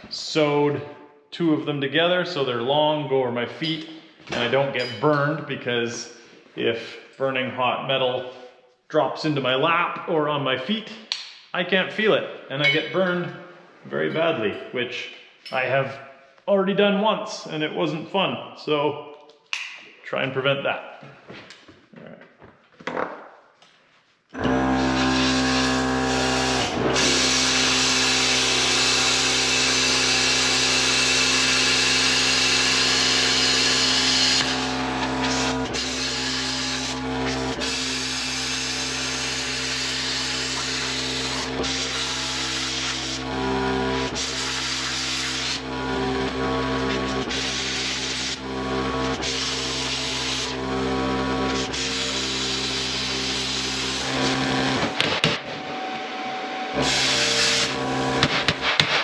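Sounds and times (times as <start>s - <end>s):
machine humming: 24.4s - 58.8s.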